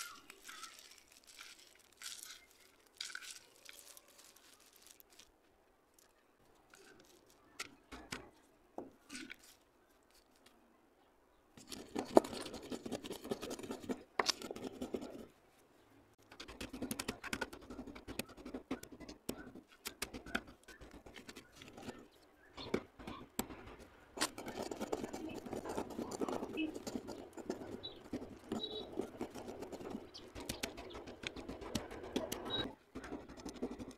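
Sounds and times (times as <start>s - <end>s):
pencil pieces clicking: 0.0s - 5.3s, 11.6s - 15.2s, 16.2s - 33.9s
gritty crunching between palms: 0.0s - 8.3s, 16.2s - 33.9s.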